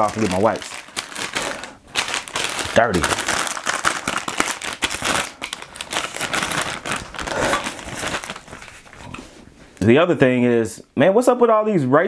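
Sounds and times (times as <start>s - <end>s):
wrapper crinkling and rustling: 0.0s - 9.2s.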